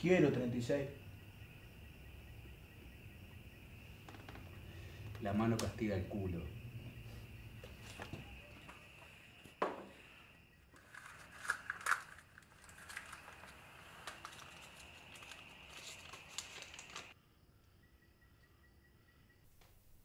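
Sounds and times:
wrapper crinkling and tearing: 10.8s - 17.1s.

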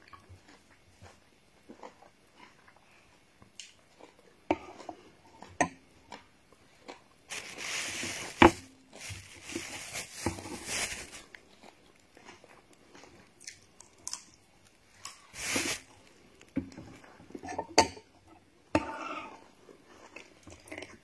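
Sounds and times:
loud rustling at microphone: 7.3s - 11.3s, 15.4s - 15.9s.

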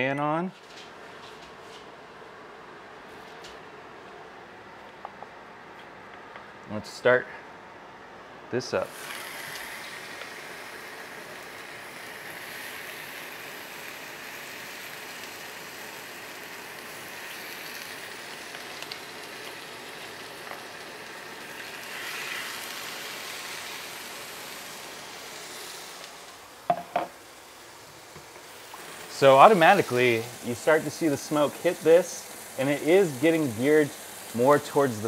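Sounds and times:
vent fan running: 0.0s - 35.0s
chicken sizzling in hot oil: 8.9s - 35.0s.

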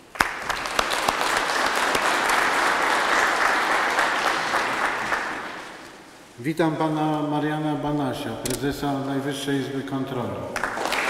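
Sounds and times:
audience applauding: 0.0s - 6.2s, 10.6s - 11.0s.

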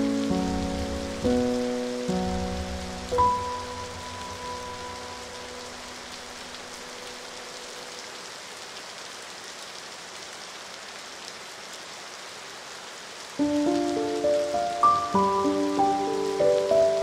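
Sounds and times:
music: 0.0s - 7.6s, 13.4s - 17.0s
steady rain falling: 0.0s - 17.0s.

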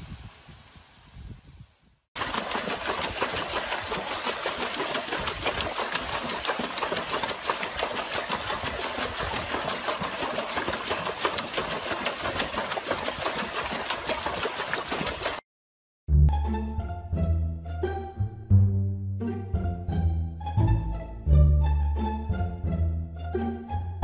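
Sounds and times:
dog splashing water: 2.2s - 15.4s.

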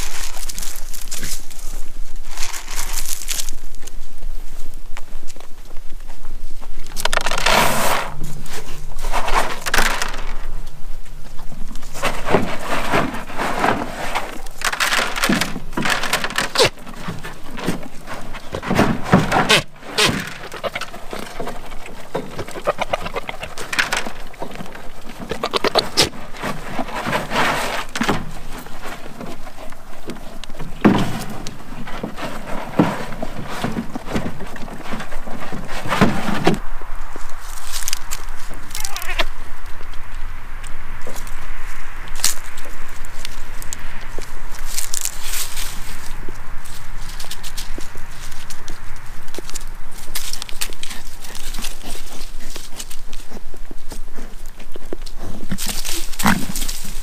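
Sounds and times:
animals crunching feed: 0.0s - 57.0s.

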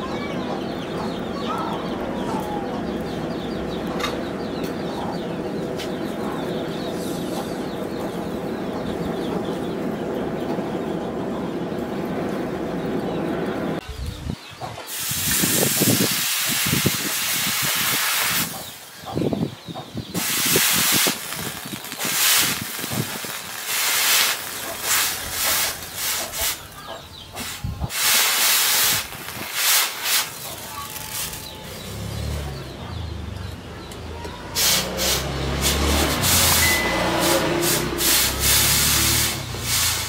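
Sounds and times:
hot blade hissing in water: 14.9s - 18.6s, 20.2s - 26.6s, 27.4s - 30.6s, 37.3s - 40.0s.

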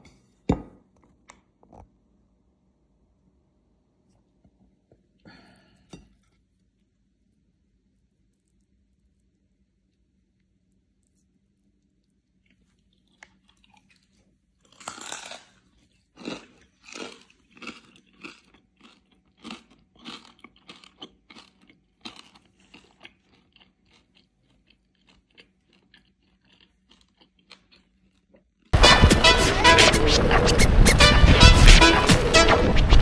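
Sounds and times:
crunchy chewing: 12.0s - 28.7s.

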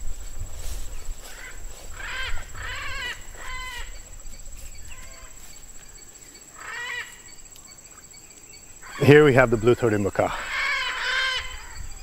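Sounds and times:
macaws giving harsh calls: 1.2s - 4.0s, 4.8s - 5.4s, 6.5s - 7.4s, 8.8s - 11.9s.

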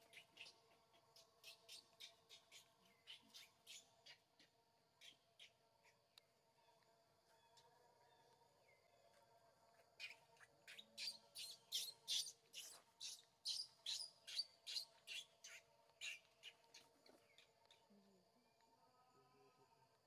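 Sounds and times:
bird chirping: 0.0s - 6.0s, 9.7s - 18.1s.

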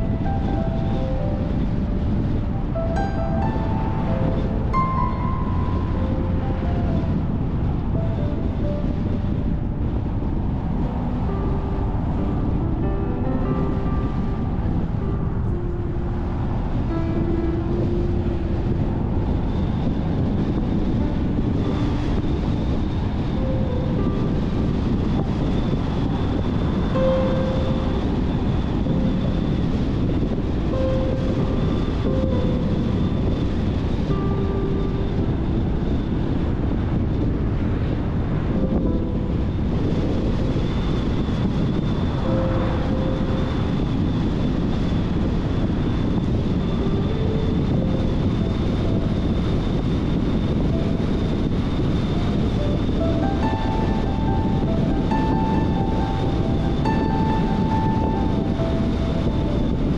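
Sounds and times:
background music: 0.0s - 10.3s
faint whine: 0.0s - 59.9s
tyre and wind noise: 0.0s - 59.9s.

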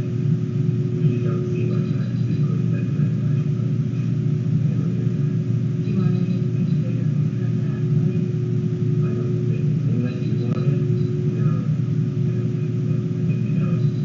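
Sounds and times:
low mechanical rumble with hum: 0.0s - 14.0s.

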